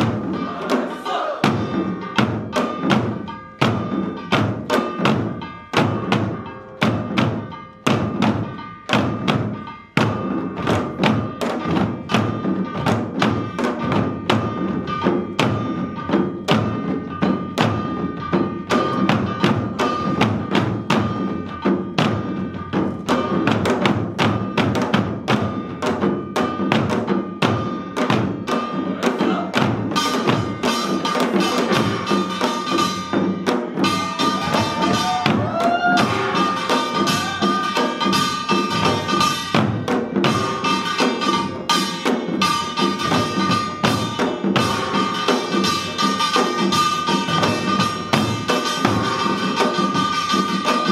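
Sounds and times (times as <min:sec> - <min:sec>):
hourglass and barrel drums: 0:00.0 - 0:50.9
gong ringing: 0:33.8 - 0:50.2.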